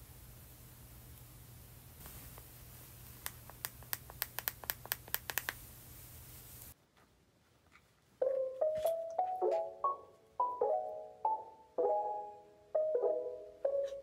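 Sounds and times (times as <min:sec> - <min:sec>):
sharp little clicks: 0:03.2 - 0:05.6
light mallet background music: 0:08.2 - 0:14.0.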